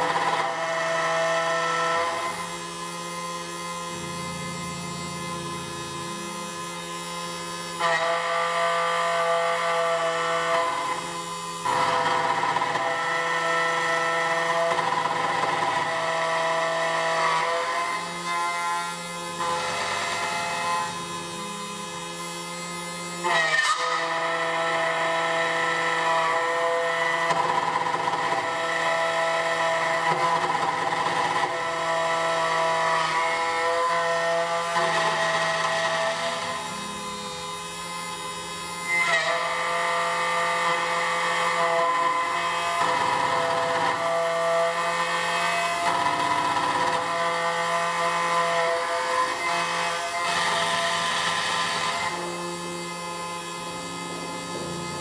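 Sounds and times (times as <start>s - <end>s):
key cutting machine milling: 24.0s - 55.0s.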